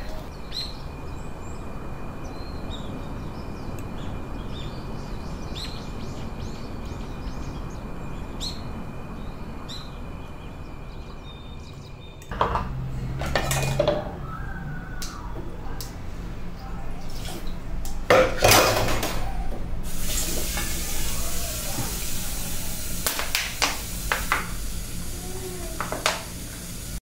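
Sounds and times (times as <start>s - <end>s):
cutlery and dishes clinking: 12.3s - 14.1s, 18.1s - 19.3s
dishes clattering at sink: 12.3s - 14.2s, 18.1s - 22.0s, 25.8s - 26.3s
background hiss: 15.8s - 27.0s.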